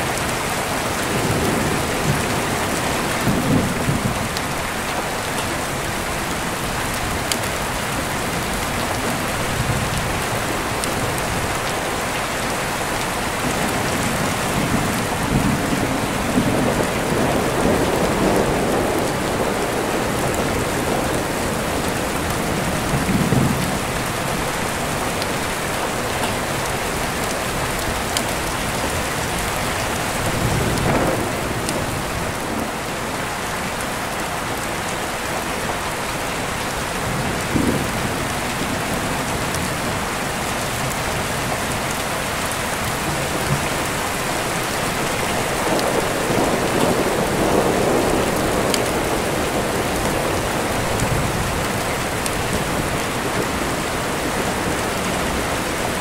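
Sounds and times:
steady rain: 0.0s - 56.0s
thunder rumbling: 13.1s - 33.2s, 42.9s - 56.0s.

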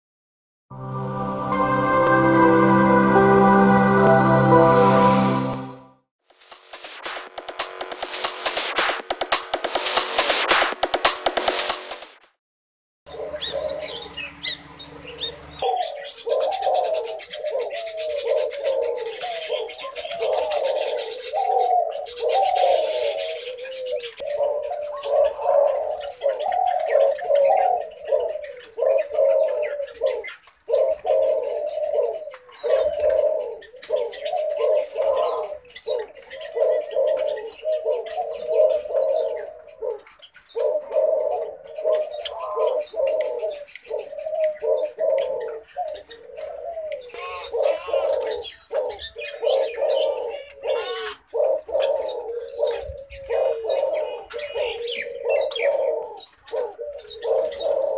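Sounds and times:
dove cooing: 13.1s - 57.9s.

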